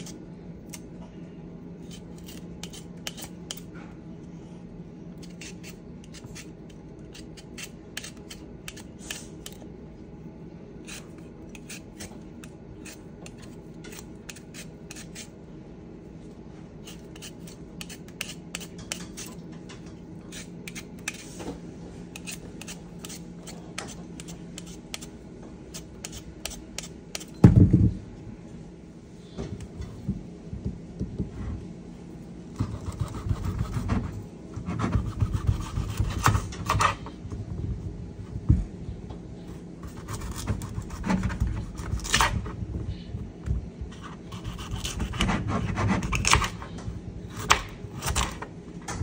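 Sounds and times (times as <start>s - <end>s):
peeler scraping beetroot: 1.8s - 3.6s, 5.2s - 9.6s, 10.8s - 15.3s, 16.8s - 19.4s, 22.1s - 25.1s, 25.7s - 27.3s, 44.0s - 46.6s.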